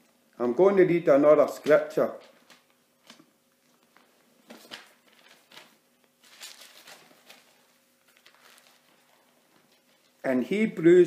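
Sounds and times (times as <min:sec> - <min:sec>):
thin paper pages rustling: 0:02.2 - 0:10.2.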